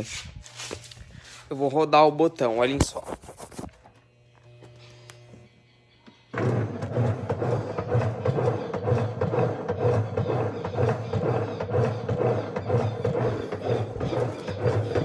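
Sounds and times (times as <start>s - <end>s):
washing machine agitating: 6.4s - 15.0s.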